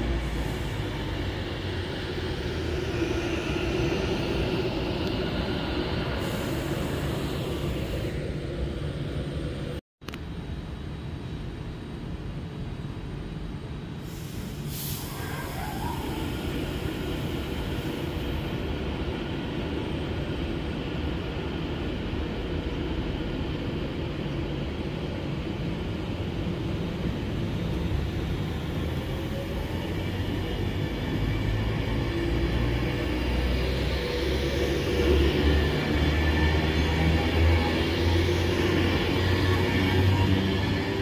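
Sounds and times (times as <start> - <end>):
train wheels rumbling on rail: 11.7 - 41.0
brief high hiss: 14.0 - 16.2.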